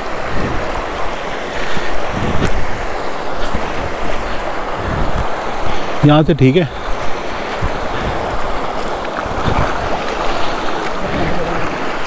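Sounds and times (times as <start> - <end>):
river water rushing: 0.0 - 12.0
splashes from wading: 6.7 - 12.0.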